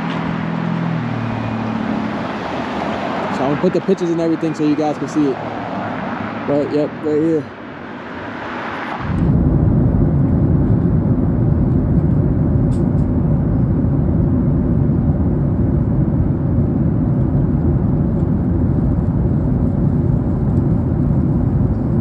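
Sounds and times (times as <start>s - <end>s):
steady low rumble: 0.0s - 22.0s.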